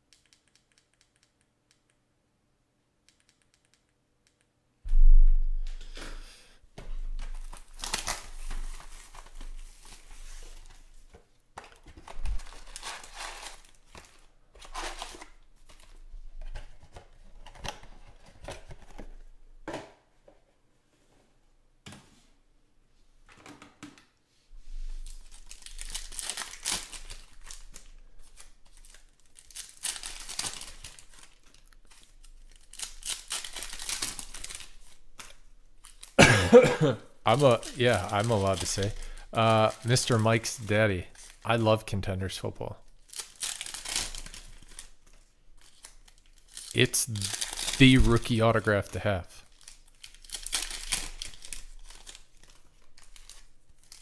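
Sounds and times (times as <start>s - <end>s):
card packs crinkling and tearing: 7.1s - 10.9s, 11.6s - 16.0s, 25.0s - 36.2s, 37.3s - 41.8s, 42.9s - 54.0s.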